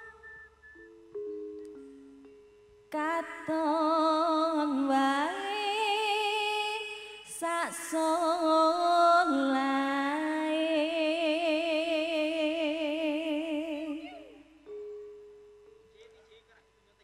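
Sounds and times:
woman singing with vibrato: 0.0s - 0.3s, 2.9s - 14.7s.

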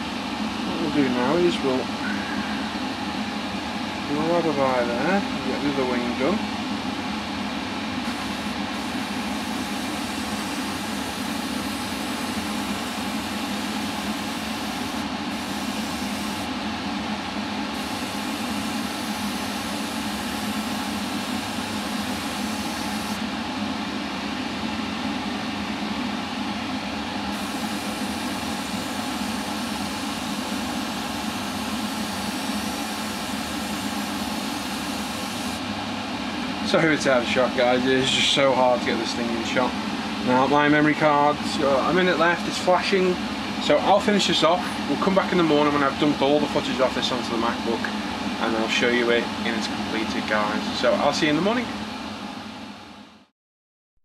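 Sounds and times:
extractor fan humming: 7.4s - 52.7s
airbrush hissing: 8.1s - 16.5s, 17.8s - 23.2s, 27.4s - 35.6s.

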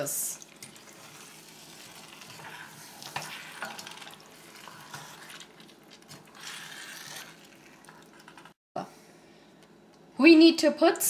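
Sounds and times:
low sizzle of frying: 0.0s - 8.6s
wooden spoon scraping metal pot: 0.8s - 8.6s.

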